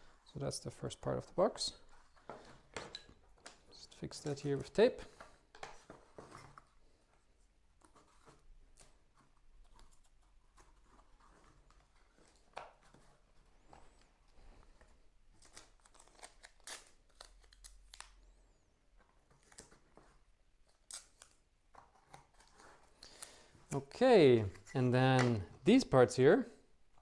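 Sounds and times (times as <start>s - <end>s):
masking tape tearing: 15.5s - 18.1s.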